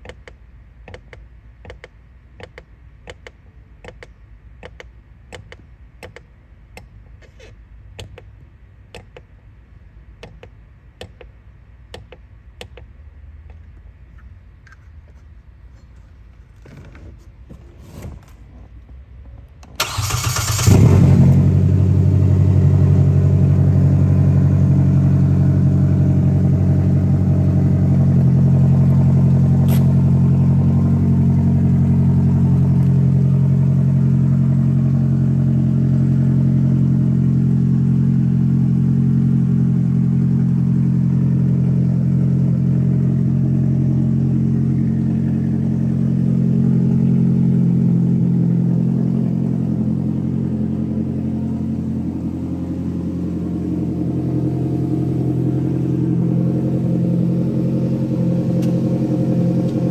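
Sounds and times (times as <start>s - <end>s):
engine idling: 19.6s - 59.9s.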